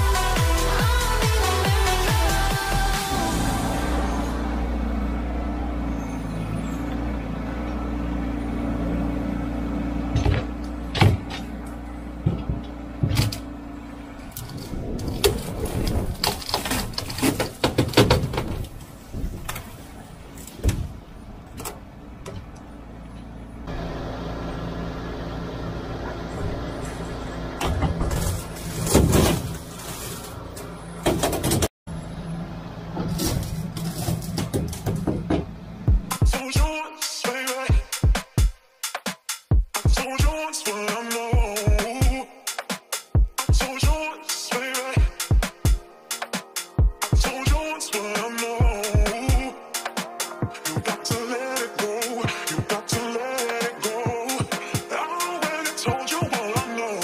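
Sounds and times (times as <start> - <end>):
excavator engine running: 0.0 - 36.8, 44.6 - 57.0
knocks and scraping: 10.0 - 13.6, 14.2 - 23.4, 26.1 - 31.7, 32.9 - 36.3.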